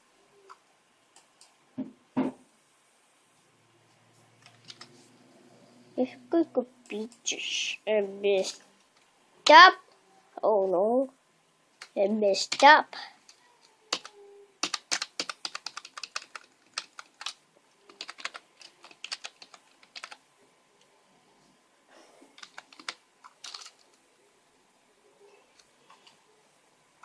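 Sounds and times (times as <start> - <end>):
computer keyboard clicking: 4.4 - 4.9, 13.3 - 20.2, 22.4 - 24.0.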